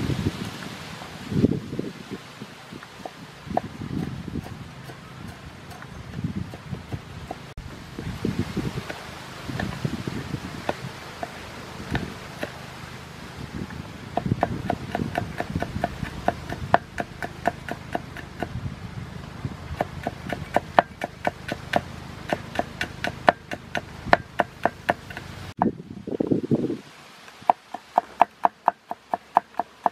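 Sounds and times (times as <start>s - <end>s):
cleaver chopping on a board: 8.8s - 9.9s, 10.6s - 12.6s, 14.1s - 18.6s, 19.8s - 25.3s, 27.4s - 29.9s.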